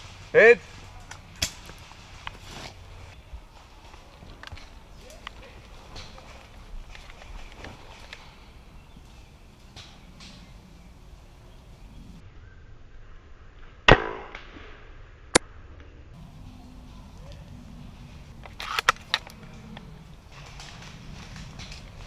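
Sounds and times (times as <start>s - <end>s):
airsoft rifle shot: 13.9s - 14.5s.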